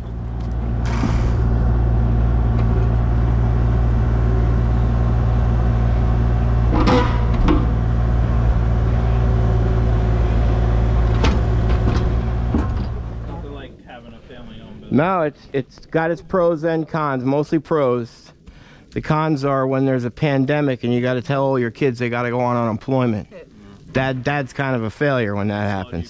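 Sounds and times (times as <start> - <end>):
excavator diesel engine humming: 0.0 - 15.1
metallic clank: 6.6 - 8.2.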